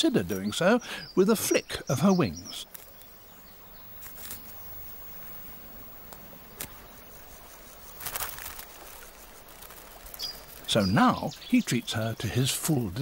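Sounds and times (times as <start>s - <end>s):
faint outdoor ambience: 0.0s - 13.0s
short rustling: 7.9s - 10.7s.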